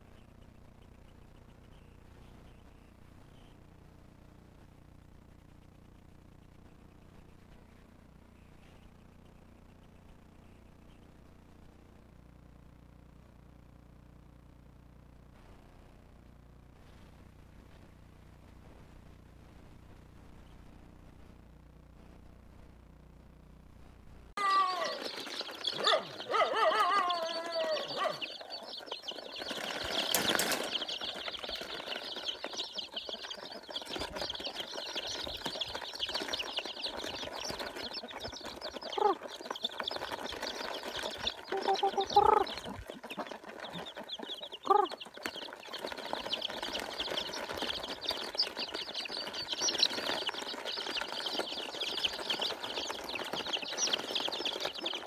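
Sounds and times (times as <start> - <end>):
chicks peeping: 0.0 - 3.7, 5.4 - 11.9, 24.4 - 55.0
short low clucking calls: 41.5 - 45.3.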